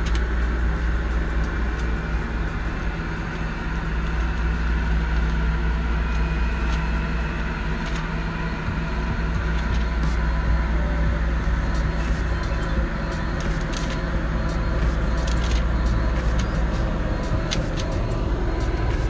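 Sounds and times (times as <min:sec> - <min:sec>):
low engine drone: 0:00.0 - 0:19.0.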